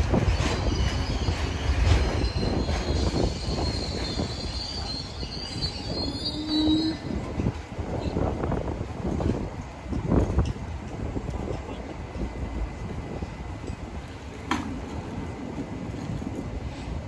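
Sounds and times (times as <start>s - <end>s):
subway train wheels rumbling: 0.0s - 17.0s
high-pitched wheel squeal: 0.5s - 7.2s.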